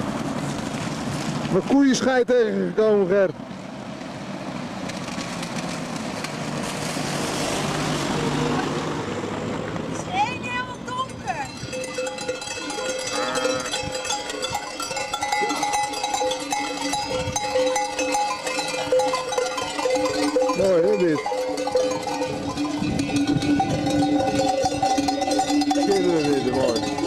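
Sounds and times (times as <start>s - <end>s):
sheep bells clanking: 10.4s - 27.0s.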